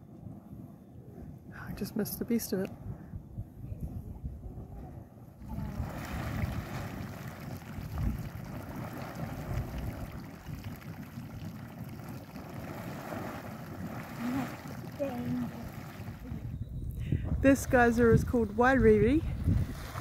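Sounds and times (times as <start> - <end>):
geyser bubbling and splashing: 5.4 - 16.6, 19.3 - 20.0.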